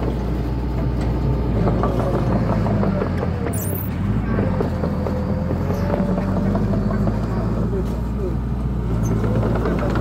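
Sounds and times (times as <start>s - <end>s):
bulldozer diesel engine running: 0.0s - 10.0s
high squeak: 3.5s - 3.9s.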